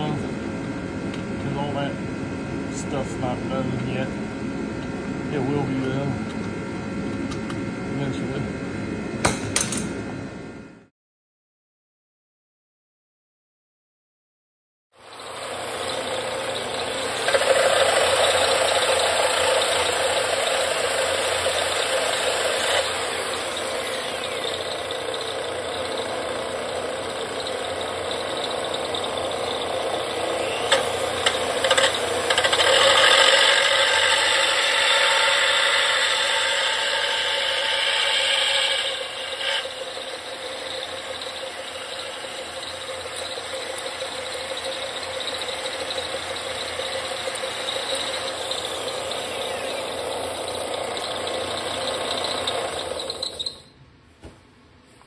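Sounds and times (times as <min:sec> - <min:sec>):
disc sander grinding wood: 0:15.0 - 0:53.6.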